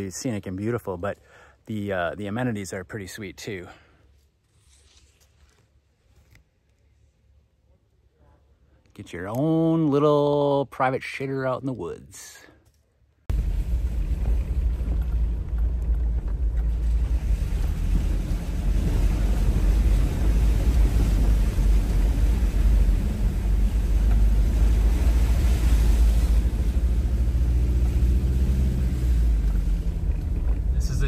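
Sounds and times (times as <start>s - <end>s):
wind noise on microphone: 13.3s - 26.9s
engine and tyres rumbling: 13.3s - 31.0s.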